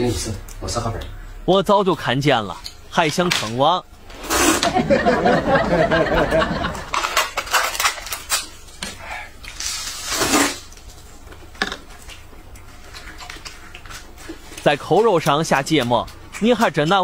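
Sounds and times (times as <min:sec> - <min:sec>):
slurping noodles: 0:04.1 - 0:04.7
chopsticks clicking against bowls: 0:14.5 - 0:17.0.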